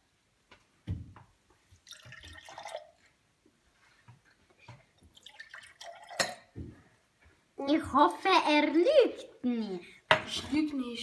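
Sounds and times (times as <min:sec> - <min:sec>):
liquid pouring into glasses: 0:01.8 - 0:03.1, 0:05.0 - 0:06.6.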